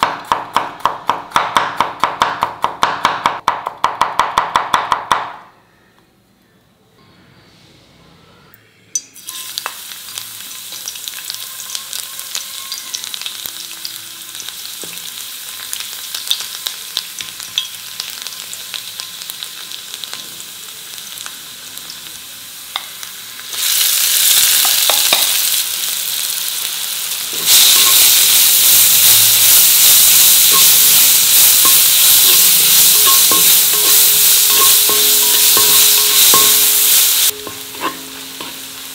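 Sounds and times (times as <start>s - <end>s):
food frying in hot oil: 9.2s - 38.9s.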